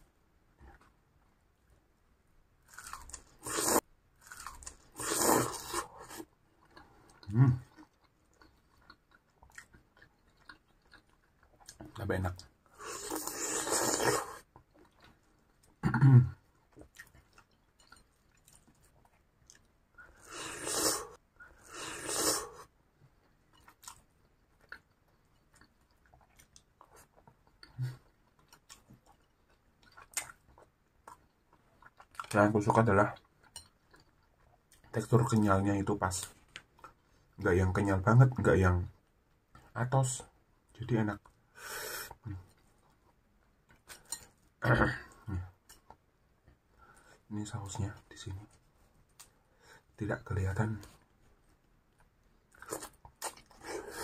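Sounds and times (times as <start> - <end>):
crunchy food being chewed: 2.6 - 12.0, 12.8 - 32.4, 50.6 - 54.0.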